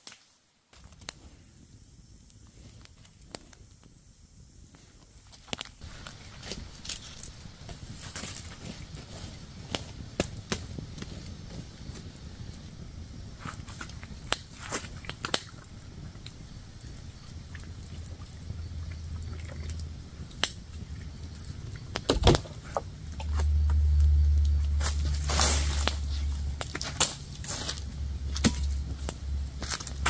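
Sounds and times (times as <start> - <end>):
campfire crackling: 0.0 - 30.0
low rumble: 15.8 - 30.0.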